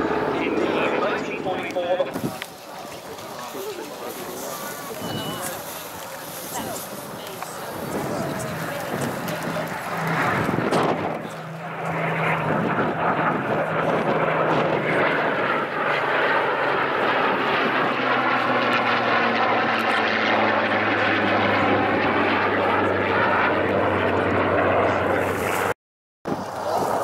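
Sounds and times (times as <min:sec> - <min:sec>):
piston engine aircraft drone: 0:00.0 - 0:25.7
jet aircraft rush: 0:00.0 - 0:27.0.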